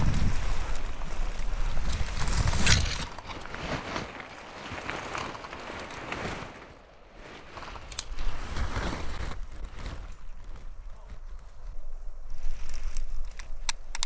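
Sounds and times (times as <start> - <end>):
pine needles crackling and rustling: 0.0 - 14.0
sharp click: 13.3 - 14.0.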